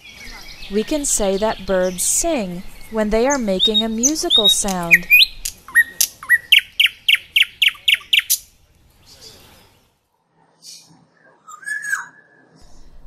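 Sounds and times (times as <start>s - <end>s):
nightingale singing: 0.0s - 8.5s.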